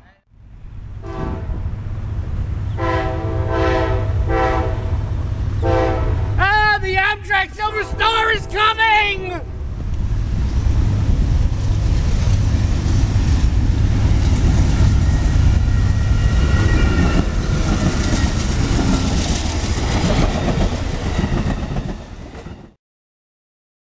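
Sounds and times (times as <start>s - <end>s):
train rumbling on rails: 0.1s - 22.8s
high wheel squeals: 14.8s - 19.0s.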